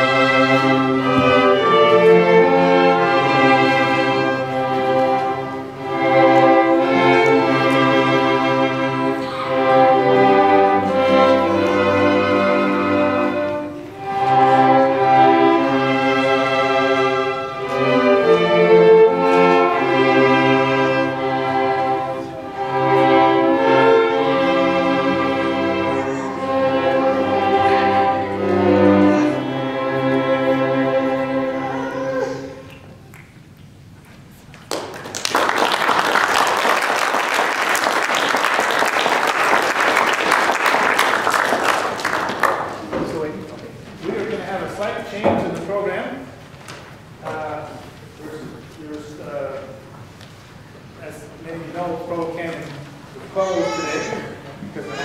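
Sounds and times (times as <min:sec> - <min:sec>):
string ensemble playing hymn: 0:00.0 - 0:55.0
audience applause: 0:34.6 - 0:43.3.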